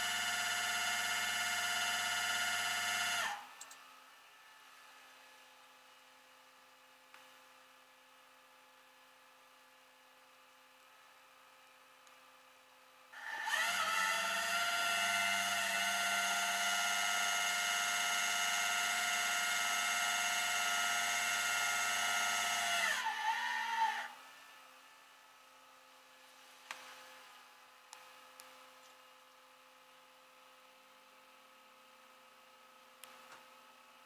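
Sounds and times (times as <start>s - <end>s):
hydraulic winch whining: 13.2s - 24.2s.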